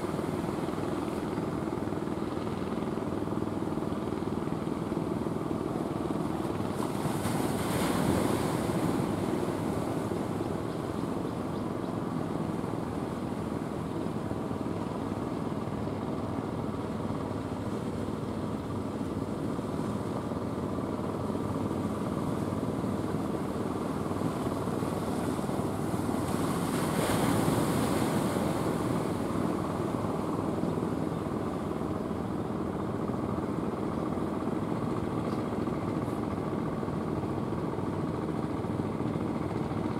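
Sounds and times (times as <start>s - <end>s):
small boat engine running: 0.0s - 39.9s
waves washing on shore: 6.1s - 10.7s, 21.3s - 32.3s.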